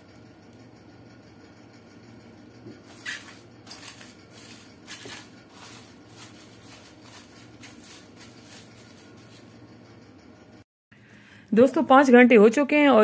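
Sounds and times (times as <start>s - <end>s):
plastic cling film crinkling: 2.9s - 9.5s.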